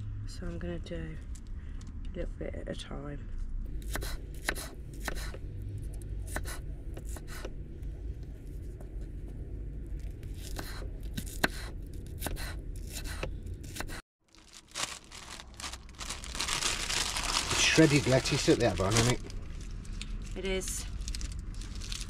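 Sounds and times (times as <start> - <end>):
plastic bag crinkling: 14.2 - 22.0.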